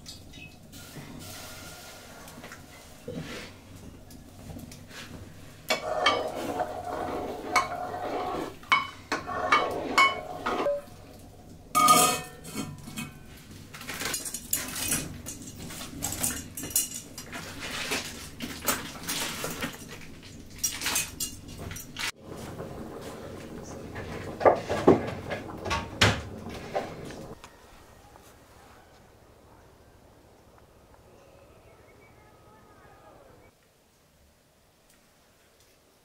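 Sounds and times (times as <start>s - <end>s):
pots and utensils clattering: 5.6s - 27.4s.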